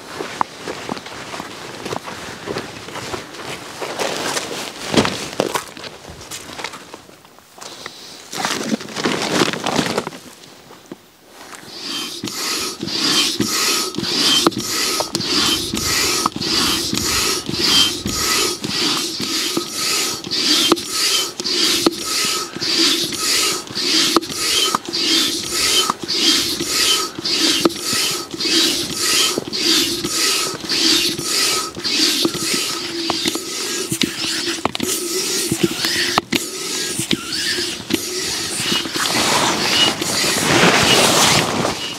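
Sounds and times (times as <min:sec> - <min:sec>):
hand saw cutting wood: 0:11.5 - 0:41.9.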